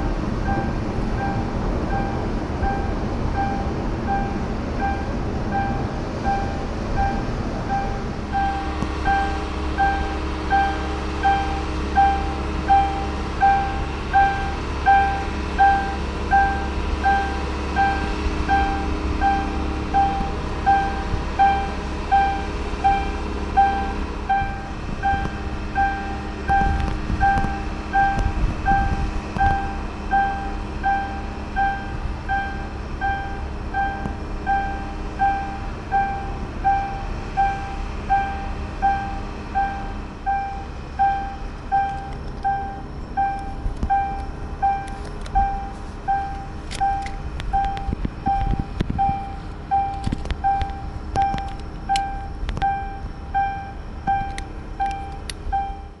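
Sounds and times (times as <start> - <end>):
steady low rumble: 0.0 - 56.0
sharp clicks: 54.2 - 55.5.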